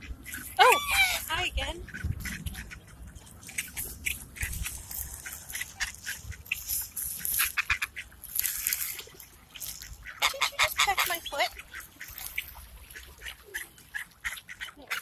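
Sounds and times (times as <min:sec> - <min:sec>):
duck calls: 0:00.0 - 0:02.9, 0:04.4 - 0:08.1, 0:09.9 - 0:15.0.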